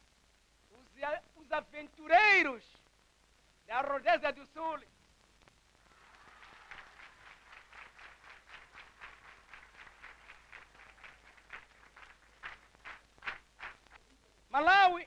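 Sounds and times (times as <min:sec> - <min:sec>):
faint crowd applause: 0:05.8 - 0:14.2.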